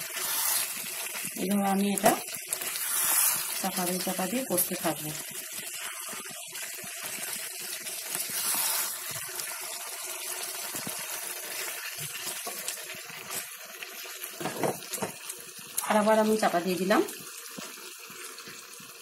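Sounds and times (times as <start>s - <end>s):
chicken sizzling in a frying pan: 0.0s - 19.0s
wooden spatula scraping and stirring: 2.6s - 4.1s.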